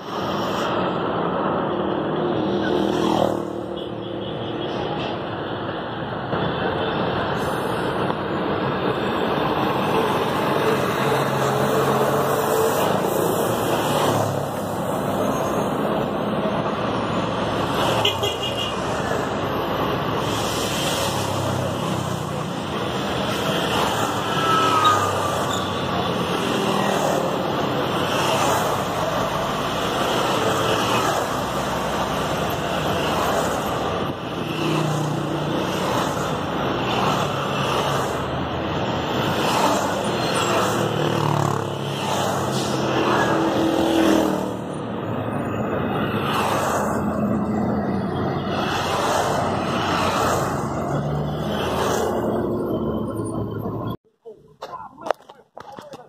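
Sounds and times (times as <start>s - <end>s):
highway traffic rushing: 0.0s - 56.0s
motorcycles passing close: 39.2s - 44.7s.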